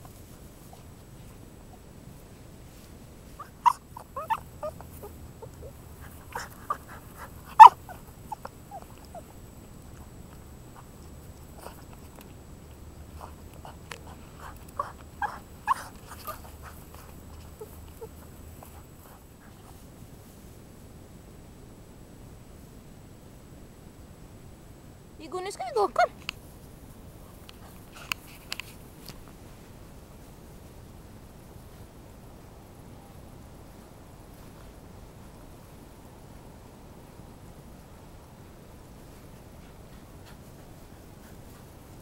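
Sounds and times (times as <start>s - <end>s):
dog whining in high squeaks: 3.4s - 9.3s, 14.8s - 18.8s.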